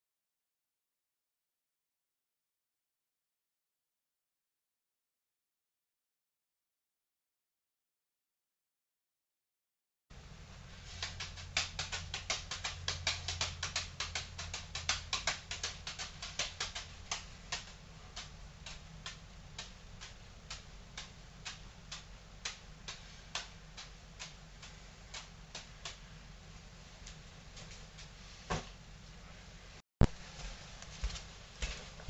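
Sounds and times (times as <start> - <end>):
juggling balls slapping into hands: 10.9 - 26.1.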